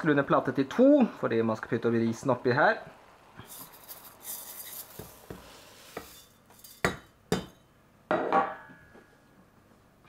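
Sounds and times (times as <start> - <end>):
rice grains pouring: 3.4 - 6.4.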